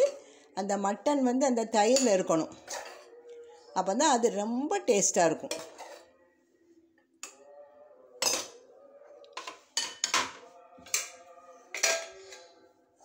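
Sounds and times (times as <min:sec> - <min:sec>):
metal pots and lid clinking: 0:01.8 - 0:03.0, 0:05.4 - 0:06.0, 0:08.2 - 0:08.6, 0:09.4 - 0:12.4.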